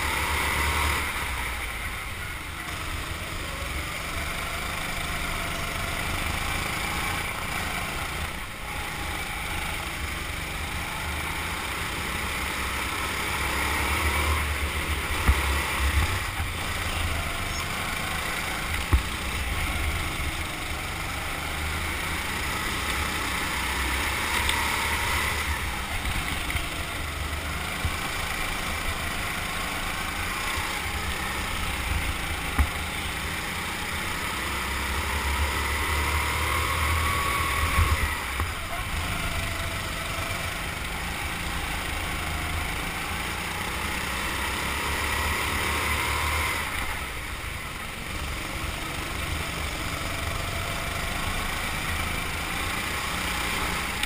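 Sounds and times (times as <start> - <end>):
go-kart motor and tyres droning: 0.0 - 54.0.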